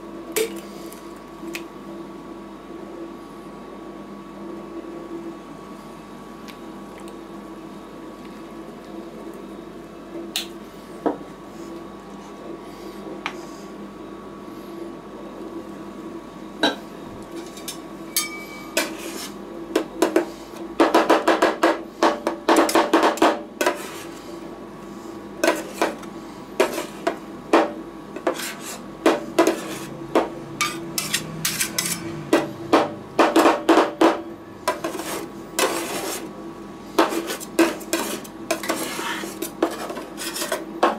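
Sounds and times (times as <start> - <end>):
refrigeration unit humming: 0.0 - 40.9
metal spatulas chopping and scraping: 17.4 - 24.2, 25.4 - 36.3, 37.0 - 40.9.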